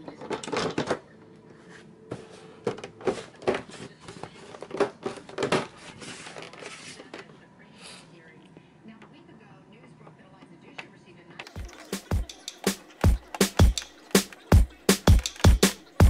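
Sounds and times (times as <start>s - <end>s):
plastic computer case clicking: 11.4s - 16.0s.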